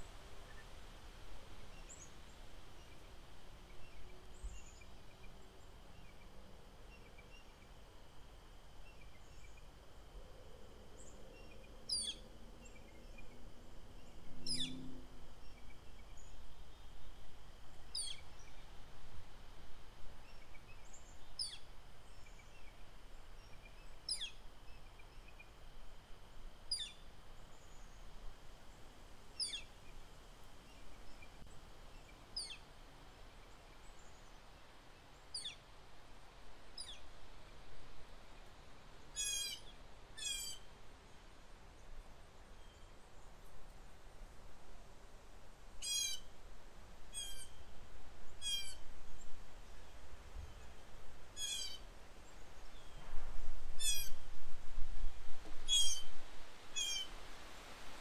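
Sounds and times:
wind noise: 0:52.8 - 0:58.0.

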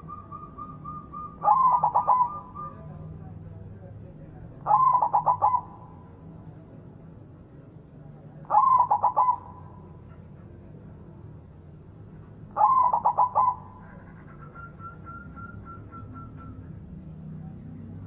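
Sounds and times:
dove cooing: 0:00.0 - 0:03.3, 0:04.6 - 0:06.0, 0:08.4 - 0:10.2, 0:12.5 - 0:17.0.

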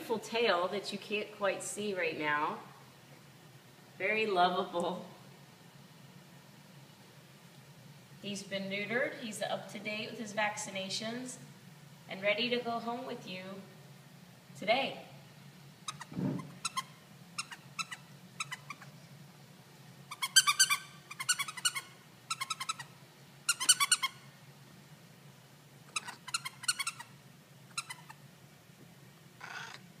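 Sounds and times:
faint low hum: 0:00.0 - 0:30.0
cat chirping trills: 0:15.8 - 0:18.9, 0:20.1 - 0:22.9, 0:23.5 - 0:24.2, 0:25.9 - 0:27.1, 0:27.7 - 0:28.2.

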